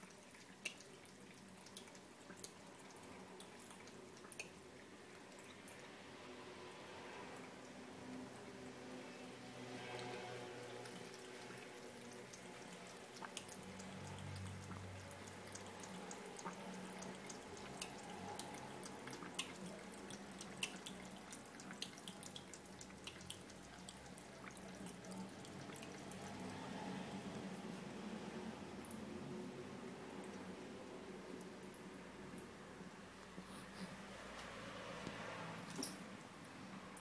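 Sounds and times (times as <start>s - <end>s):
water trickling into sink: 9.6s - 33.0s
small irregular clicks: 12.3s - 24.6s.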